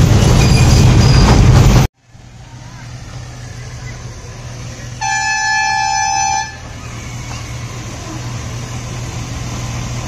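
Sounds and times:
train engine humming: 0.0 - 10.0
train horn: 5.0 - 6.7.

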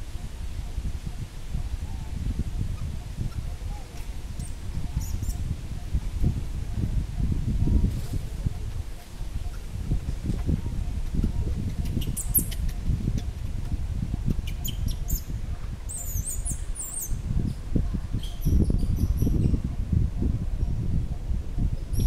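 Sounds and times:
wind rumbling on microphone: 0.0 - 22.0
small birds twittering: 1.6 - 13.3, 14.2 - 19.8.

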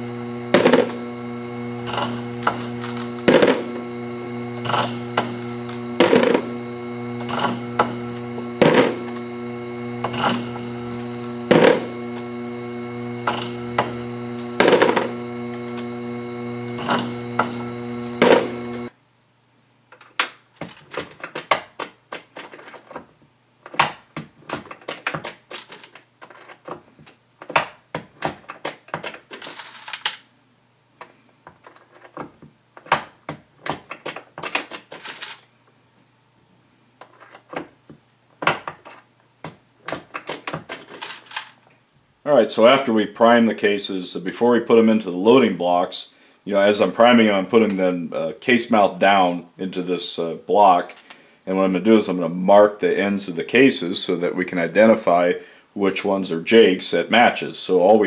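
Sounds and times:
trimmer motor humming: 0.0 - 18.9.

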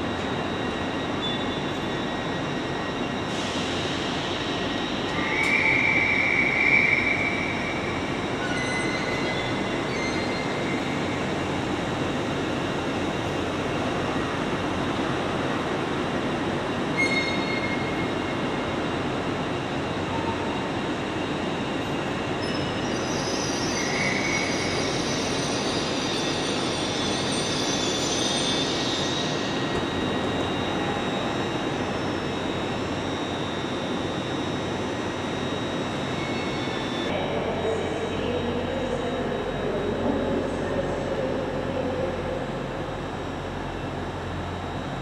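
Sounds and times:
passenger train rumbling: 0.0 - 45.0
high wheel squeal: 1.1 - 10.9, 17.0 - 18.0.

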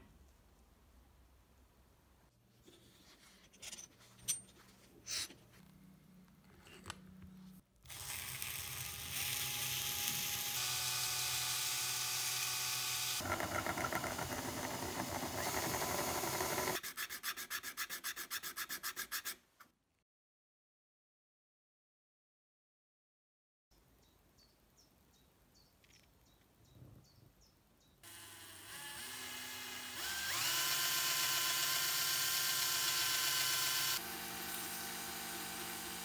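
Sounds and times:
power drill motor hum: 7.9 - 16.8, 28.0 - 36.0.

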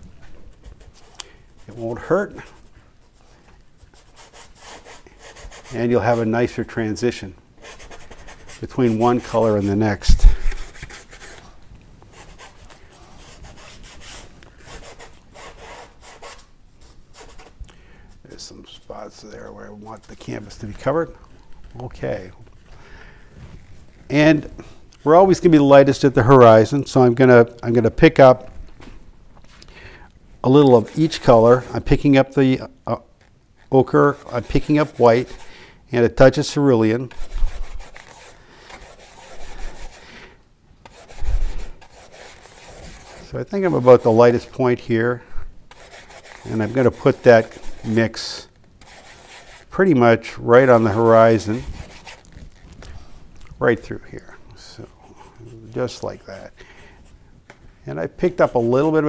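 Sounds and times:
paintbrush scrubbing on canvas: 0.6 - 6.5, 7.6 - 17.6, 30.6 - 32.1, 34.1 - 35.5, 37.1 - 40.1, 40.8 - 44.6, 45.7 - 52.8, 58.1 - 59.0.

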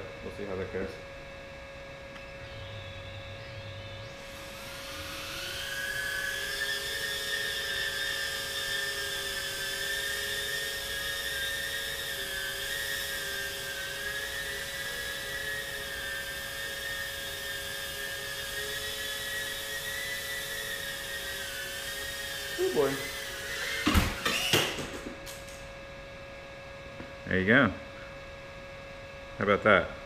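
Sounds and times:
drone motors whining: 1.9 - 25.8.

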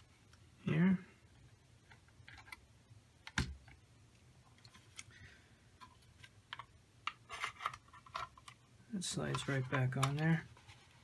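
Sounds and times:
plastic parts clicking and rustling: 1.8 - 3.8, 5.8 - 11.0.

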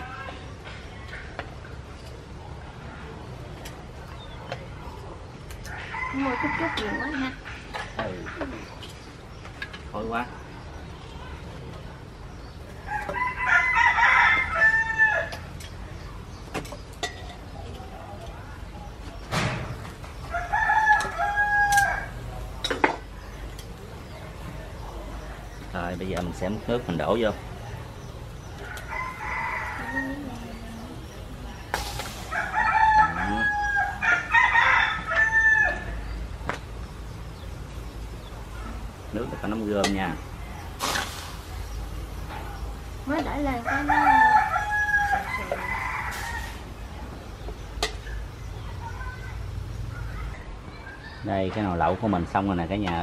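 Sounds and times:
rooster crowing: 5.7 - 7.3, 12.9 - 15.4, 20.3 - 22.2, 28.6 - 30.9, 32.2 - 36.1, 43.6 - 46.6.

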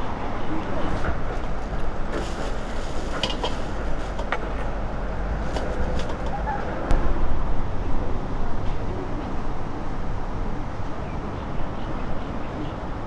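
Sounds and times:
steady low rumble: 0.0 - 12.1.

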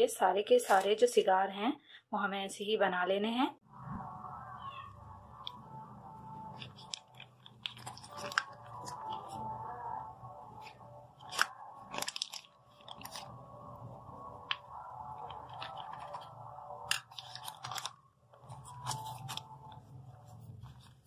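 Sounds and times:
pastry sheets crinkling: 6.4 - 9.8, 10.4 - 21.0.

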